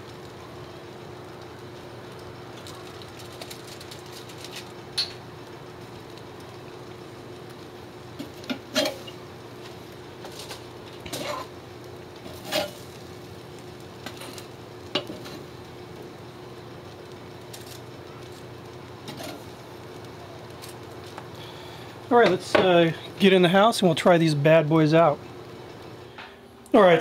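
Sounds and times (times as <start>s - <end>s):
faint steady hum: 0.0s - 27.0s
metal tongs clinking on grill grate: 8.4s - 9.2s.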